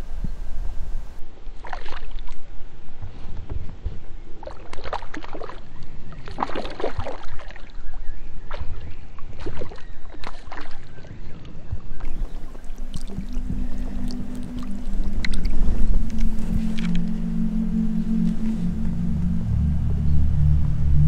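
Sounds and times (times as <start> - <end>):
steady low rumble: 0.0 - 1.2, 12.1 - 21.0.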